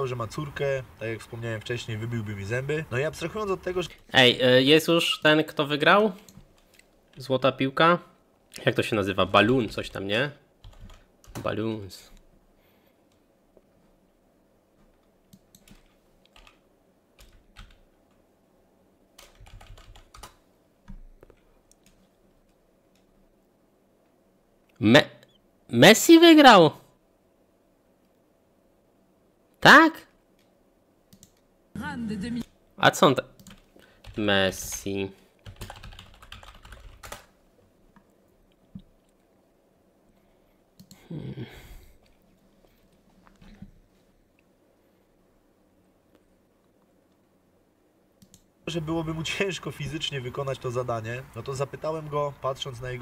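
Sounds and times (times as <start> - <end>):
computer keyboard typing: 10.6 - 11.5, 15.3 - 16.6, 17.2 - 17.9, 19.2 - 21.0, 31.1 - 31.4, 33.3 - 37.3, 40.8 - 41.0.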